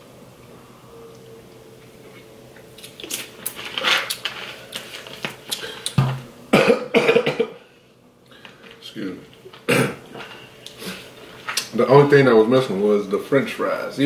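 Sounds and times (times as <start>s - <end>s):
person coughing: 6.5s - 7.6s, 9.7s - 10.0s.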